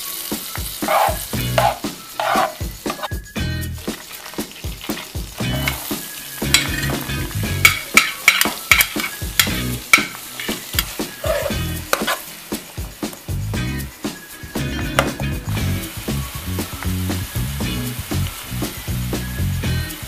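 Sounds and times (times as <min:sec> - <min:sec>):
onion sizzling in butter: 0:00.0 - 0:20.0
metal spoon scraping and clicking: 0:00.9 - 0:03.1.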